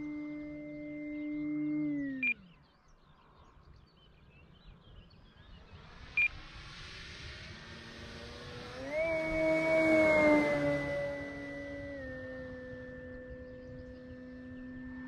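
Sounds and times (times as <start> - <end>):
faint hiss: 5.6 - 10.0
electric motor whining: 8.2 - 15.0.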